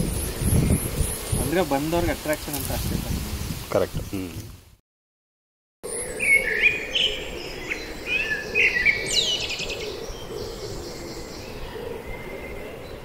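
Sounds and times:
birds chirping and whistling: 0.0 - 2.5, 5.8 - 13.0.

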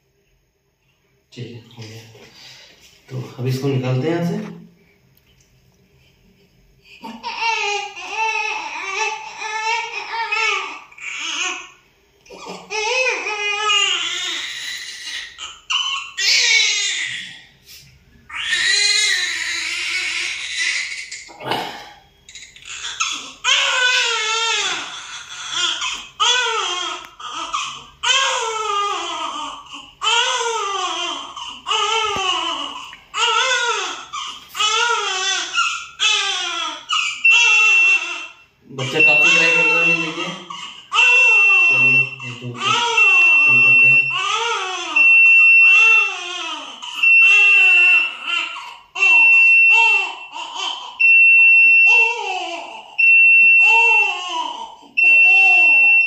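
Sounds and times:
newborn baby crying: 7.0 - 17.5, 18.3 - 56.0
electronic alarm beeps: 38.8 - 40.4, 41.3 - 44.2, 45.0 - 45.9, 47.0 - 47.9, 49.2 - 50.3, 51.0 - 52.1, 53.0 - 54.0, 55.0 - 56.0.

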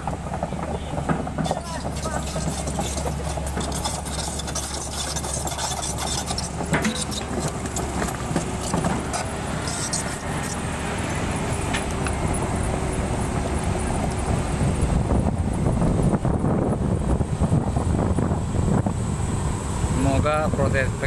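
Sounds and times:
track links clanking: 0.0 - 16.2
diesel engine drone: 0.0 - 21.0.

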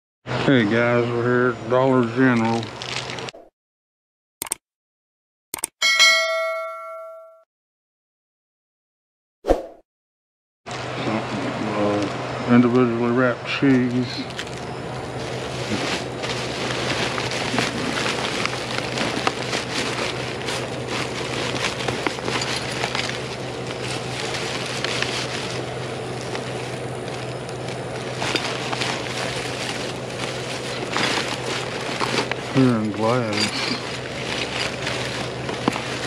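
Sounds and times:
plastic bags rustling: 2.5 - 3.3, 13.7 - 36.0
steady low hum: 10.7 - 36.0.

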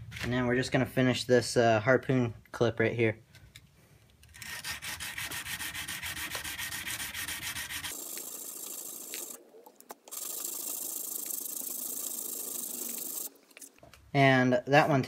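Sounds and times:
sandpaper rubbing on metal blade: 4.4 - 9.4, 10.1 - 13.3.

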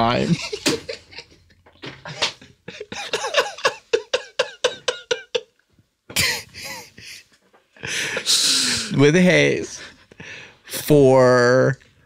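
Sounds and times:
person laughing: 0.2 - 7.3.

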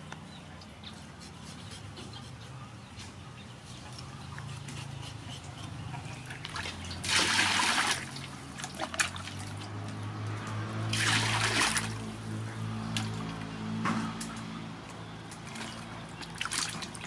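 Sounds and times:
water pouring into metal basin: 10.9 - 12.0.

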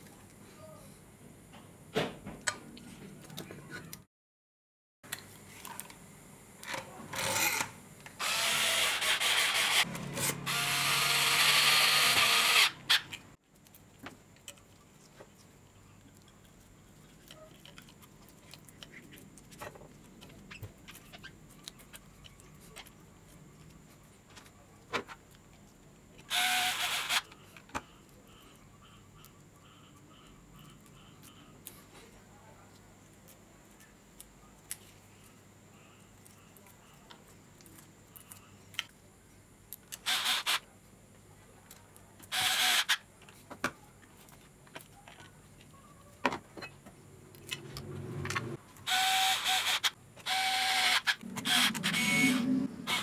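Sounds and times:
handheld power tool running: 8.2 - 13.0, 26.3 - 27.2, 48.8 - 53.0.

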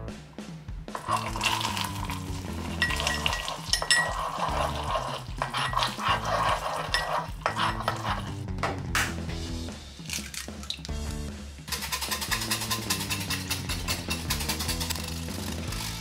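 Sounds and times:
background music: 0.0 - 16.0
hot caramel spitting and crackling: 0.9 - 8.4, 9.9 - 11.0
metal spoon clinking against cup: 1.0 - 8.3, 11.7 - 15.1.

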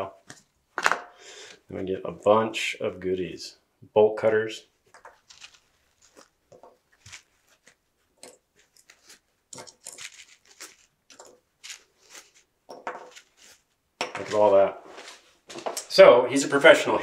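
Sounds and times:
foam packaging rustling: 5.2 - 15.7.

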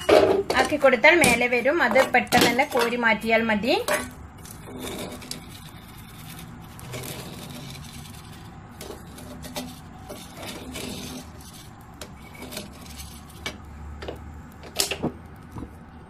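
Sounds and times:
skimmer scraping through salt: 1.6 - 13.7.

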